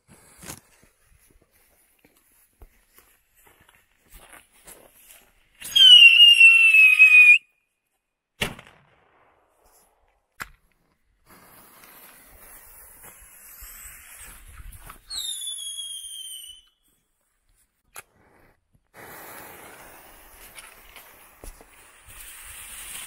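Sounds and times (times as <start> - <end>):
whistling firework: 5.6 - 7.6, 11.2 - 16.9, 19.0 - 23.0
burning fuse hiss: 11.2 - 15.6, 18.9 - 23.0.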